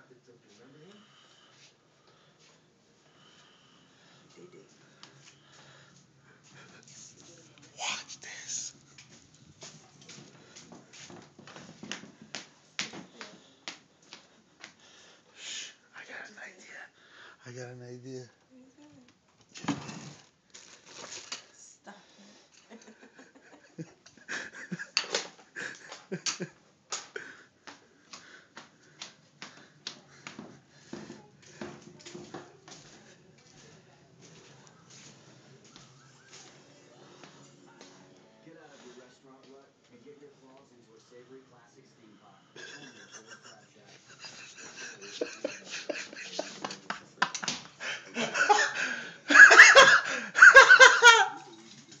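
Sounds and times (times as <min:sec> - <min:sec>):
person laughing: 0:22.7 - 0:25.0, 0:42.6 - 0:51.5.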